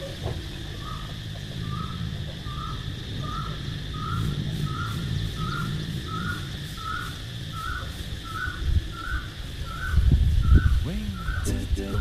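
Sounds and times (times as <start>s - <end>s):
bird calling: 0.0s - 12.0s
steady low rumble: 9.5s - 12.0s.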